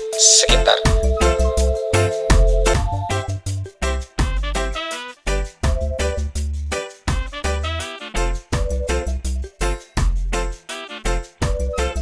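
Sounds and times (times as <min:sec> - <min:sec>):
background music with bouncy beat: 0:00.0 - 0:12.0.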